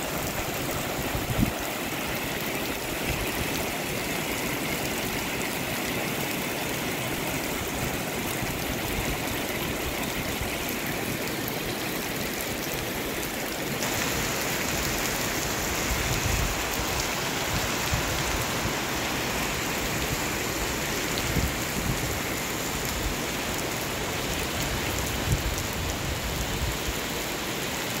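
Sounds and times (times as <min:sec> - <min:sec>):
heavy rain on pavement: 0:00.0 - 0:28.0.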